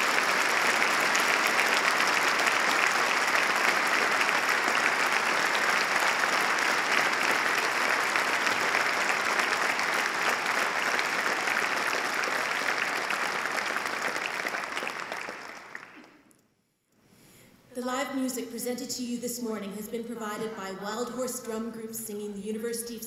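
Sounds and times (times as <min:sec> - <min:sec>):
large audience applauding: 0:00.0 - 0:16.3.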